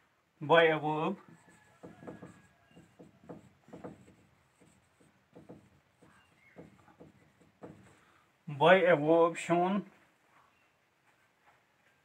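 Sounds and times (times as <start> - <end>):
handwriting scratching: 1.2 - 8.0.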